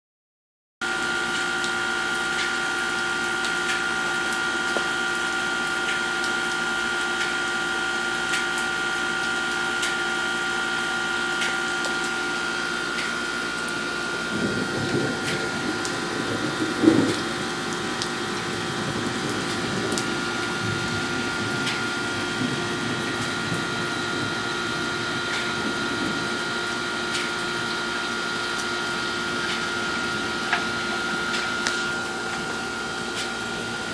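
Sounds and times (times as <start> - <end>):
steady rain with drips: 0.8 - 33.9
humming tones: 8.8 - 33.9.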